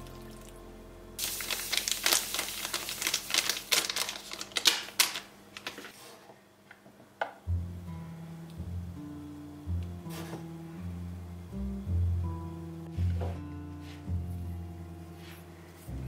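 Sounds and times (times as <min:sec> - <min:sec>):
sugar grains pouring into bowl: 0:01.2 - 0:04.3.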